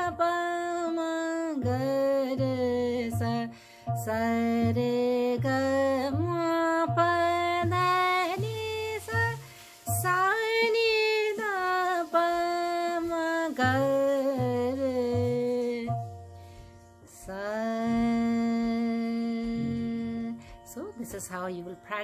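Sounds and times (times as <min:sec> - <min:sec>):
low repeating beat: 0:01.7 - 0:11.0
woman singing syllables: 0:17.2 - 0:22.0.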